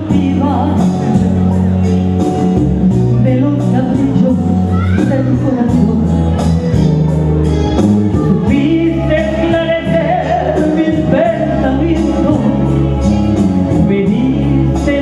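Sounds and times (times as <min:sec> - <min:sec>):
live band playing: 0:00.0 - 0:15.0
woman singing: 0:03.2 - 0:06.5.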